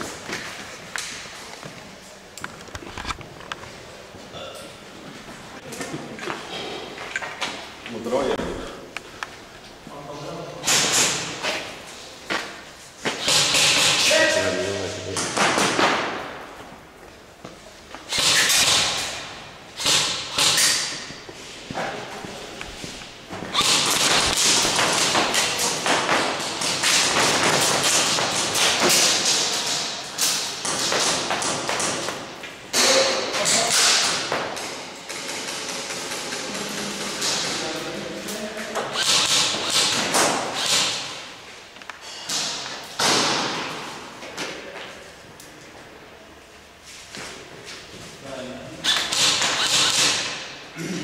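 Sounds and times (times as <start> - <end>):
bursts of airsoft fire: 13.2 - 14.4, 18.1 - 19.2, 23.5 - 32.0, 38.9 - 41.2, 48.8 - 50.5
pellets striking: 23.3 - 34.6.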